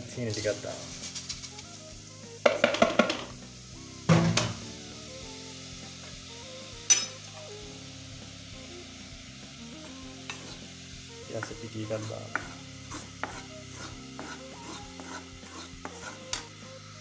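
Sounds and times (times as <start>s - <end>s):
metal spoon scraping a pan: 9.8s - 10.7s, 11.3s - 16.5s.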